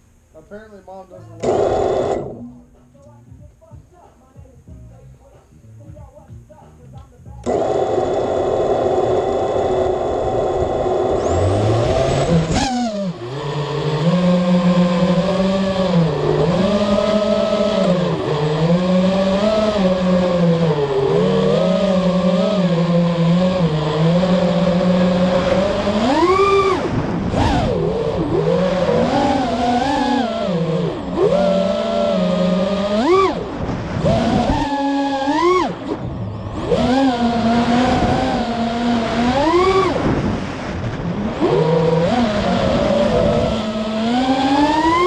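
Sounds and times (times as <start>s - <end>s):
drone motors and propellers whining: 1.2s - 4.8s, 7.3s - 45.0s.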